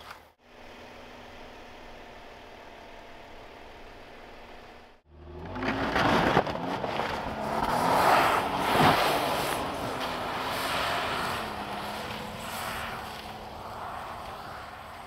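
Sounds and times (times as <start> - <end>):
truck engine revving: 4.9 - 15.0.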